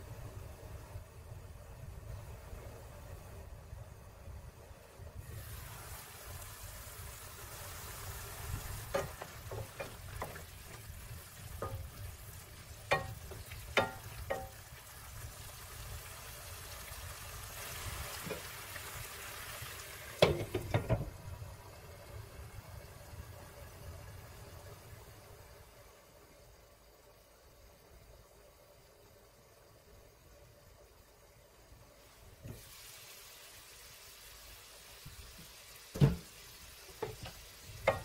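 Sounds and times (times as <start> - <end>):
peppers sizzling in a pan: 5.2 - 23.8, 30.0 - 38.0.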